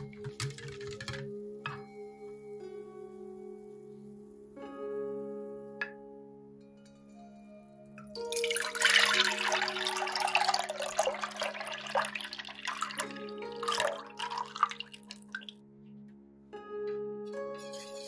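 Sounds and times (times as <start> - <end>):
liquid pouring and splashing into saucepan: 8.3 - 15.5.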